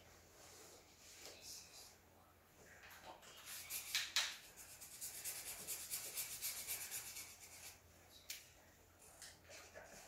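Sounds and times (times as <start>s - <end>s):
marker scribbling on paper: 3.4s - 7.8s.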